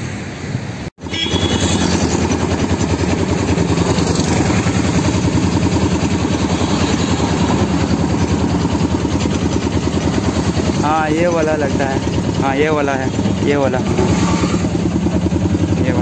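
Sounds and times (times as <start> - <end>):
vehicle engine throbbing: 1.0 - 16.0.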